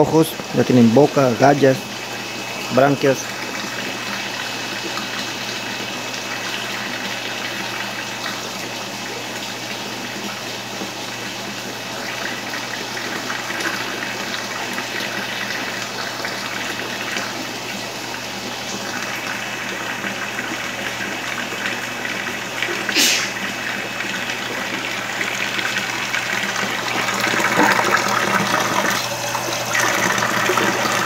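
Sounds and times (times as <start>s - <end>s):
running water: 0.0s - 31.0s.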